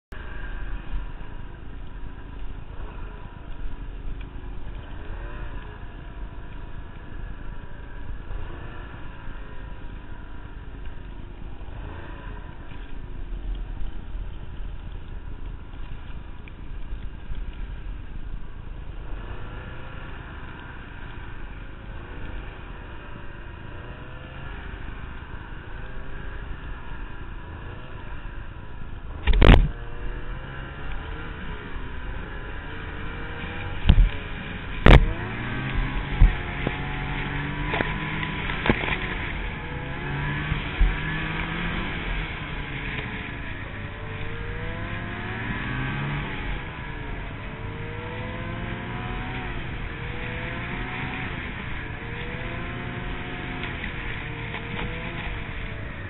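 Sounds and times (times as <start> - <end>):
snowmobile engine revving: 4.4 - 10.7, 11.5 - 12.8, 19.0 - 28.4, 29.1 - 56.0.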